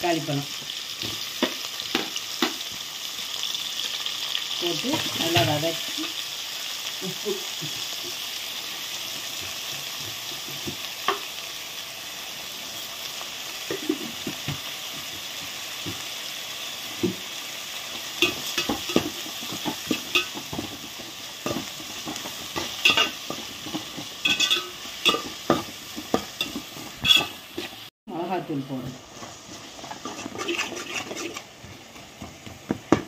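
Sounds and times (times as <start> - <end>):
vegetables sizzling in oil: 0.0 - 33.0
spoon clinking and scraping pot: 18.2 - 27.8, 29.5 - 31.5.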